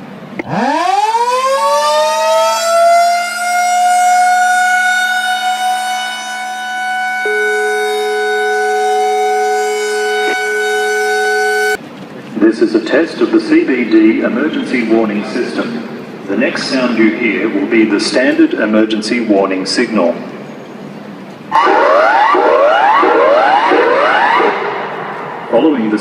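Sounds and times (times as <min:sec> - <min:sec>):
warning siren wailing: 0:00.4 - 0:11.8, 0:21.5 - 0:25.6.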